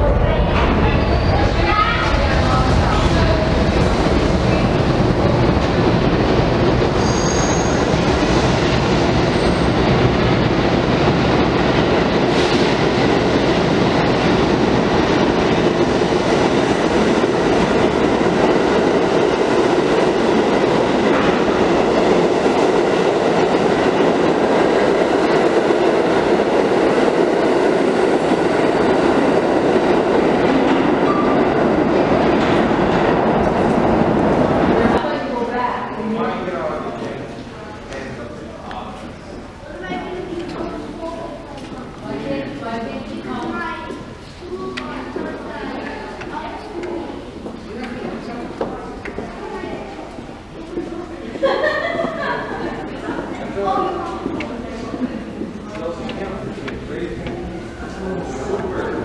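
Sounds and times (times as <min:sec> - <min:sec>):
subway wheels rumbling on rail: 0:00.0 - 0:59.0
high wheel squeals: 0:07.0 - 0:07.8.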